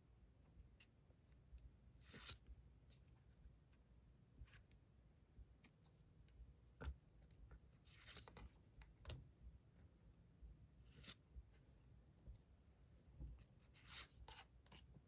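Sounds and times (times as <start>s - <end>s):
cards sliding off a stack: 2.0s - 2.4s.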